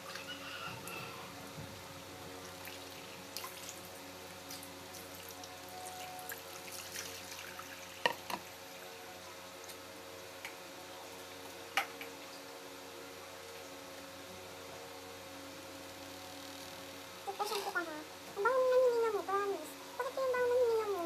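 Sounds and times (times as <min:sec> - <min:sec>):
steady low hum: 0:00.0 - 0:21.0
water splashing and dripping: 0:02.4 - 0:03.9, 0:06.2 - 0:08.0.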